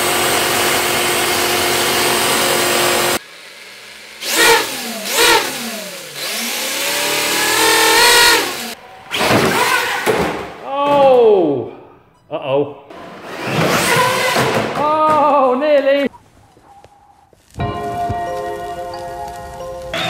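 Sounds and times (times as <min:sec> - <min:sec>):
electric motor whining: 0:00.0 - 0:10.1
rc car wheels spinning on concrete: 0:03.9 - 0:08.8.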